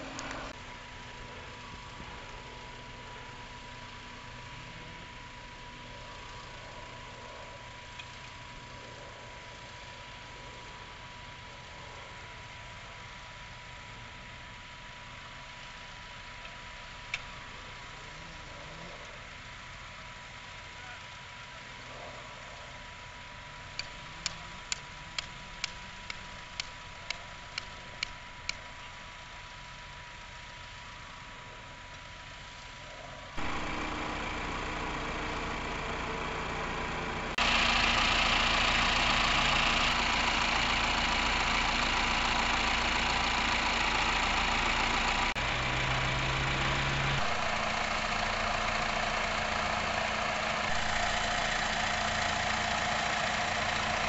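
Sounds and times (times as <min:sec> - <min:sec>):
tractor diesel engines running: 0:00.0 - 0:54.0
hammer tapping a stake: 0:23.8 - 0:28.6.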